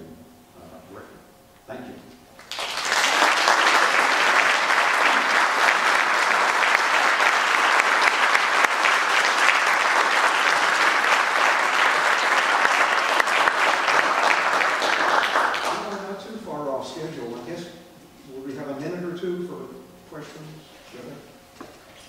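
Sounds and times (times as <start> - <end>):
audience applauding: 2.4 - 16.2.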